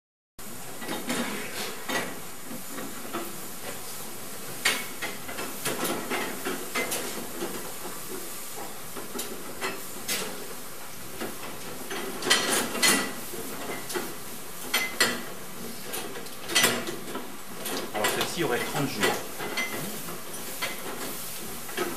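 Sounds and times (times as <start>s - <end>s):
steady hiss: 17.0s - 21.9s.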